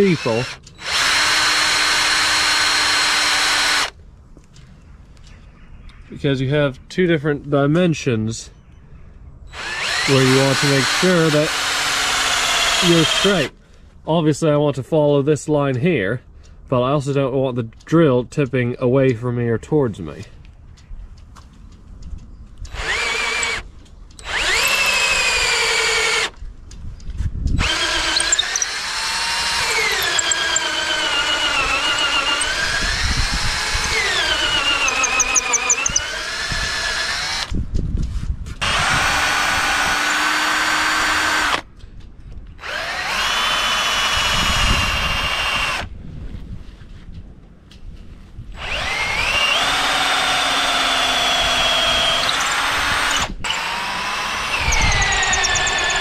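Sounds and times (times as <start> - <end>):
electric drill boring wood: 0.0 - 3.9, 9.5 - 13.5, 22.7 - 23.6, 24.2 - 26.4, 27.6 - 37.6, 38.6 - 41.6, 42.6 - 45.9, 48.6 - 56.0.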